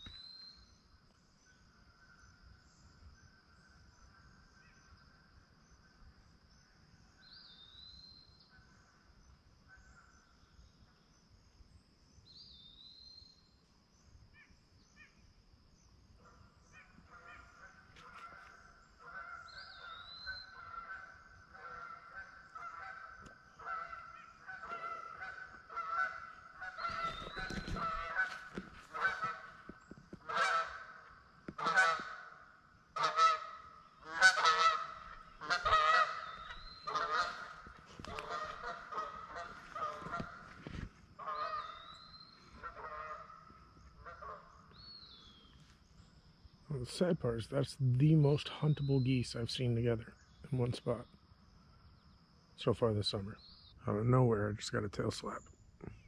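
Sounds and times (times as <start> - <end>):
geese honking: 17.1 - 44.6.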